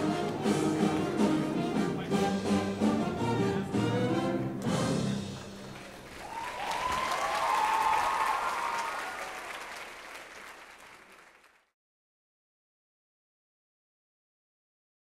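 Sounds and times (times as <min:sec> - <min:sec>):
audience applauding: 0:05.2 - 0:11.7.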